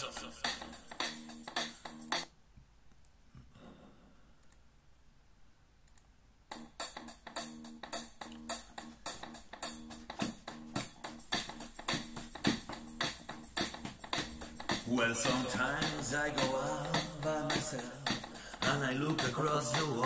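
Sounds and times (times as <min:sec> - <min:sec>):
pop backing track with drum beat: 0:00.0 - 0:02.3, 0:06.5 - 0:20.0.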